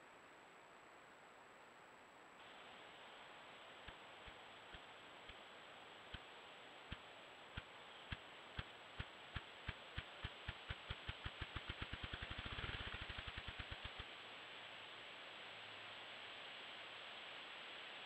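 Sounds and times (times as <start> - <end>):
grouse wing-beat drumming: 6.9 - 14.1.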